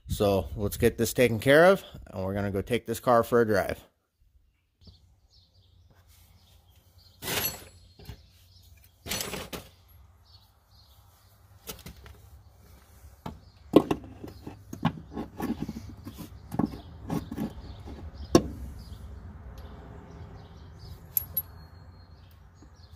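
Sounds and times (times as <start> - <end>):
tools knocking and clanking: 13.2 - 15.7.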